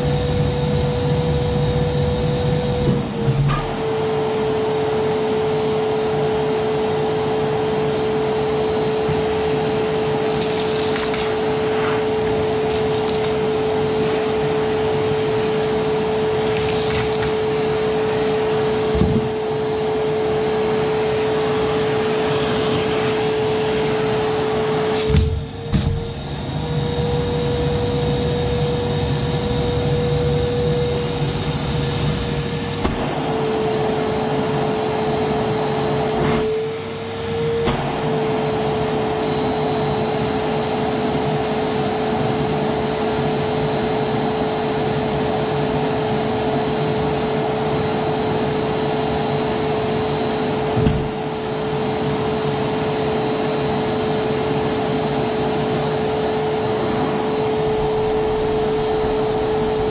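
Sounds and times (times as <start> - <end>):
vacuum cleaner motor whine: 0.0 - 59.9.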